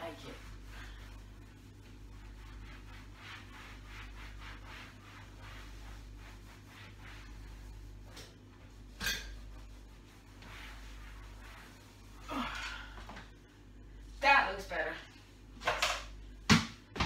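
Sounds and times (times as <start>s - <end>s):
cloth rubbing on wall: 0.0s - 13.2s
steady low hum: 0.0s - 17.0s.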